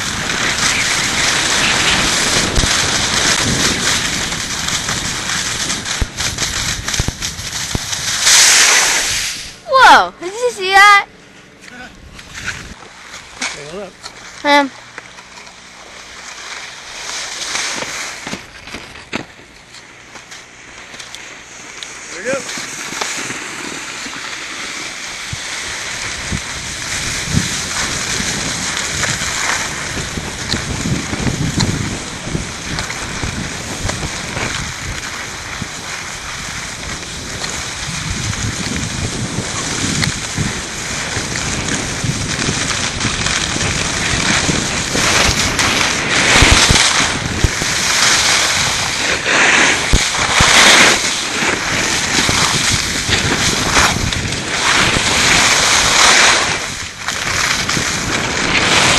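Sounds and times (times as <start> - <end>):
wind buffeting microphone: 0.0 - 8.4, 24.9 - 58.9
snowboard scraping over snow: 0.0 - 11.0, 11.7 - 14.7, 15.3 - 58.9.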